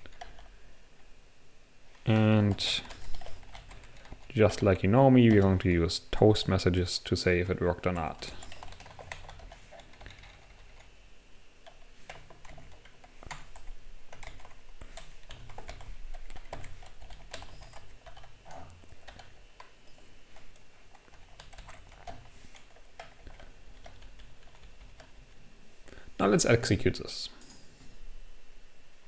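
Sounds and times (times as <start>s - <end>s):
keyboard typing clicks: 8.4s - 10.9s, 11.6s - 25.1s.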